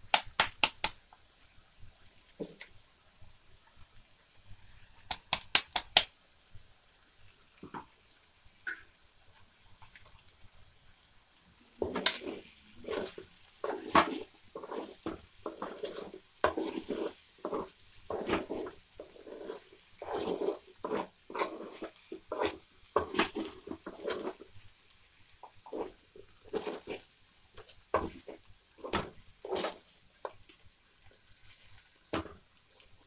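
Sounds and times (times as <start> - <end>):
spatula scraping metal pan: 11.8 - 24.6, 25.7 - 27.0, 28.0 - 30.4.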